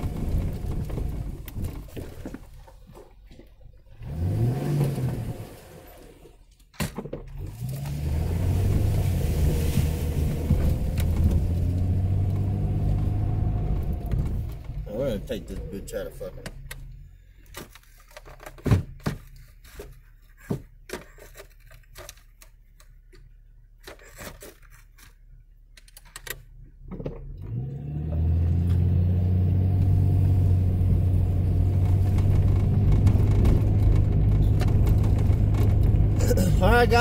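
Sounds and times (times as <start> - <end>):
vehicle engine droning: 0.0 - 2.5, 3.8 - 6.4, 7.3 - 17.6, 26.8 - 37.0
clicks and knocks inside vehicle: 0.0 - 3.9, 6.5 - 9.0, 9.7 - 28.9, 29.7 - 37.0.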